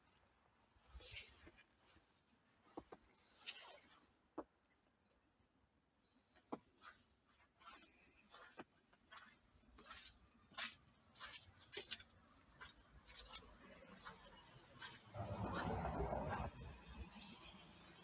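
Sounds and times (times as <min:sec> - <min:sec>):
footsteps on snow and slush: 0:06.7 - 0:16.0
thin high whistle: 0:14.2 - 0:17.2.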